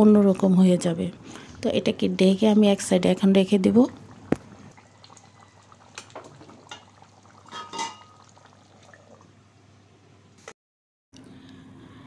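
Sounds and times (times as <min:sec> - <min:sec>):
curry bubbling in a pot: 0:02.7 - 0:09.4.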